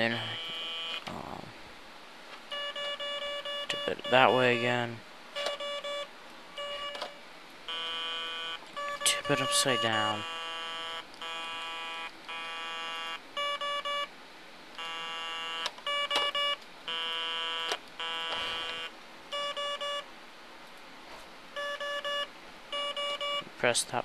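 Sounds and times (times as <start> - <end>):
quick beeps: 18.3 - 20.0, 21.6 - 23.4.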